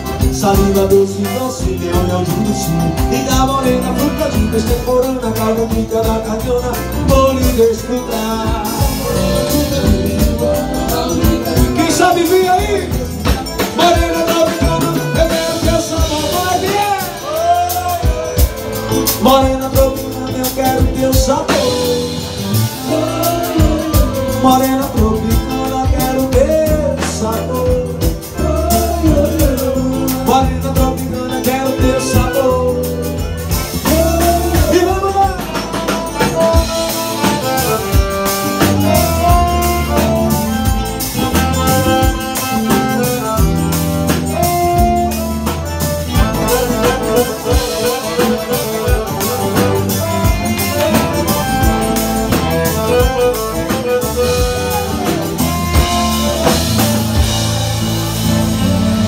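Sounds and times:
accordion melody: 0:00.0 - 0:59.0
bass drum beat: 0:00.0 - 0:59.0
drum kit: 0:00.0 - 0:59.0
guitars: 0:00.0 - 0:59.0.

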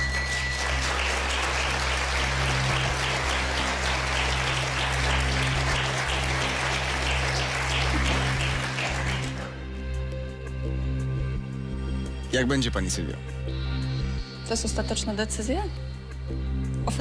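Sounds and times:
studio audience applauding: 0:00.0 - 0:09.7.

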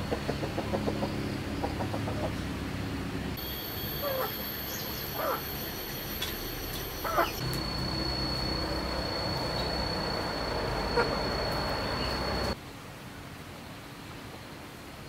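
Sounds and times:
chickens clucking: 0:00.0 - 0:02.5, 0:04.0 - 0:04.4, 0:05.2 - 0:05.4, 0:07.0 - 0:07.5, 0:10.2 - 0:12.6
chicken squawks: 0:04.0 - 0:04.4, 0:05.1 - 0:05.5, 0:07.0 - 0:07.4.

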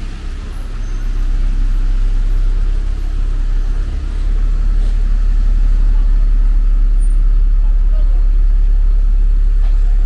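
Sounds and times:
tyres hissing on road: 0:00.0 - 0:07.2
vehicle engines rumbling: 0:00.0 - 0:10.0.

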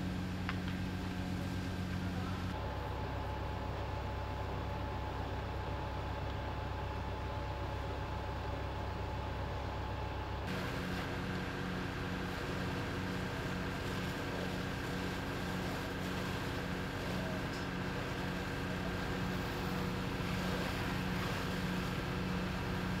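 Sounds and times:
fire engine pump engine droning: 0:00.0 - 0:23.0.

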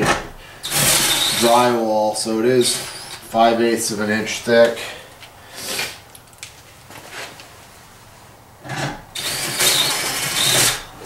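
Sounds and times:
cordless drill driving screws: 0:00.6 - 0:01.6, 0:02.6 - 0:03.3, 0:09.2 - 0:10.9.

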